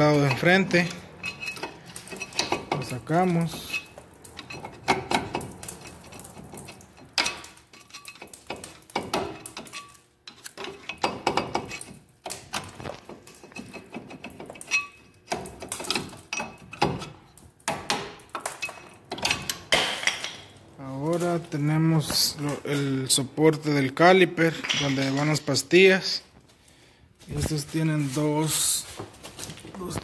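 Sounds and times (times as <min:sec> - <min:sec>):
screwdriver scraping brake pad: 0:00.2 - 0:17.1.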